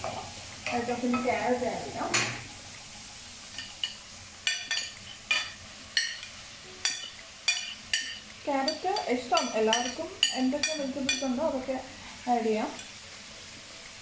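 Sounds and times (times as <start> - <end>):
onions sizzling in a wok: 0.0 - 14.0
steel spoon clinking on plate: 3.6 - 11.3.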